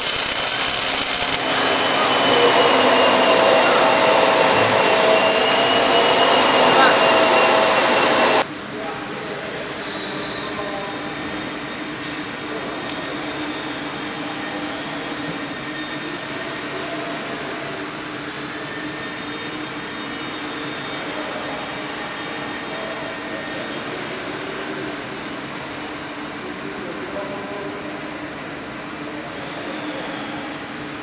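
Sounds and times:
welding machine hum and whir: 0:00.0 - 0:02.2.

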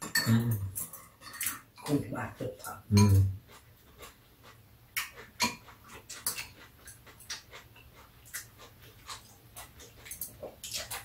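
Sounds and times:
utensils clinking on ceramic bowls: 0:00.0 - 0:02.0.

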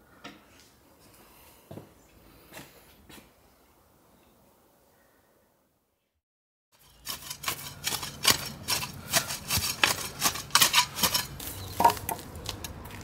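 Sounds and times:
spade digging and scraping soil: 0:06.7 - 0:13.0.

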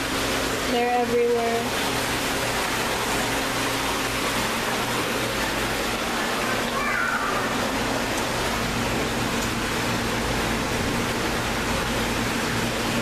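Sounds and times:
low steady hum: 0:00.0 - 0:13.0
water pouring into pool: 0:01.7 - 0:13.0.

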